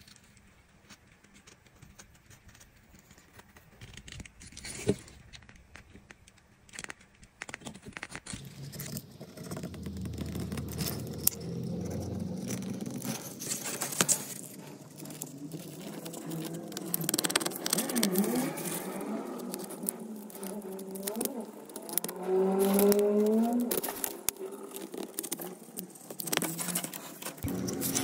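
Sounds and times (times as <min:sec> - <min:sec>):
scraping and rubbing: 0:06.8 - 0:28.0.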